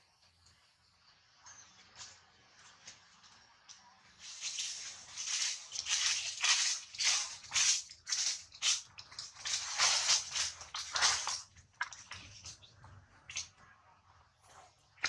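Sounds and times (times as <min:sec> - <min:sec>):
tree branches rustling: 0:04.2 - 0:11.5.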